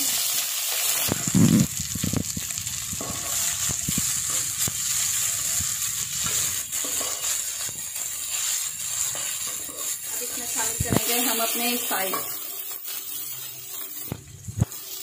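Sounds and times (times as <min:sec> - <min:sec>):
food sizzling in hot oil: 0:00.0 - 0:15.0
wooden spatula scraping pan: 0:03.0 - 0:14.1.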